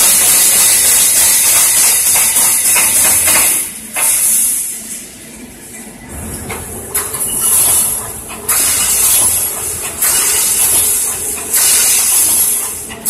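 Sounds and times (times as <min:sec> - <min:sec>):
welding machine hissing bursts: 0:00.0 - 0:04.7, 0:08.5 - 0:12.9.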